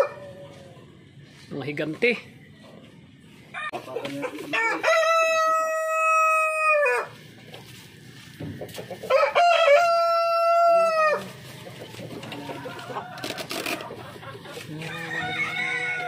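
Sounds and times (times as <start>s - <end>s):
rooster crowing: 4.5s - 7.2s, 9.1s - 11.3s, 12.2s - 14.0s, 14.7s - 16.0s.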